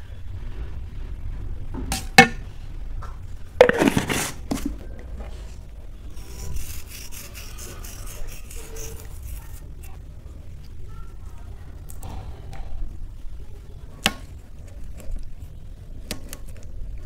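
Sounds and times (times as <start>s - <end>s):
scraping clatter: 3.6s - 5.5s
fingers rubbing: 6.1s - 10.0s.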